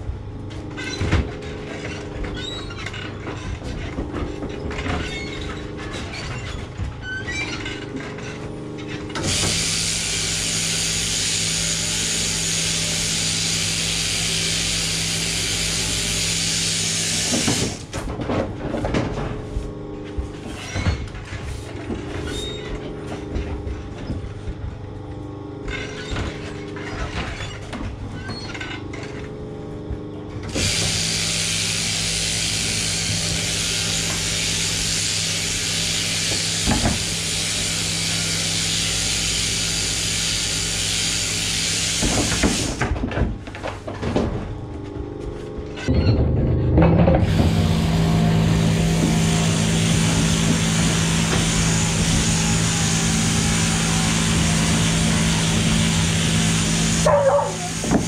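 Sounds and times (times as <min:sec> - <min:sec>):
shearing handpiece buzzing: 0:08.9 - 0:17.9, 0:30.4 - 0:42.8, 0:47.2 - 0:58.0.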